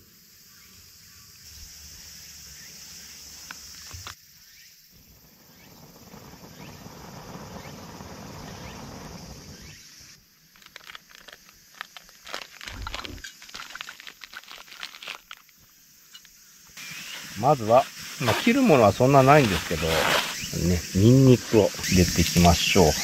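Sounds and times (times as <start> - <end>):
steady hiss: 0.0 - 23.0
wood fire crackling and popping: 5.0 - 9.6, 10.5 - 16.3
breaths blown onto embers: 16.8 - 23.0.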